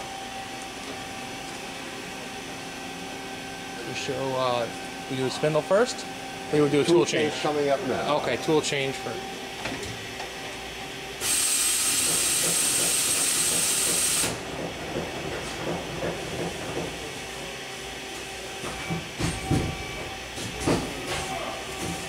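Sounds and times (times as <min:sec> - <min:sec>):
machine hum: 0:00.0 - 0:11.5
compressed air hiss: 0:11.2 - 0:14.4.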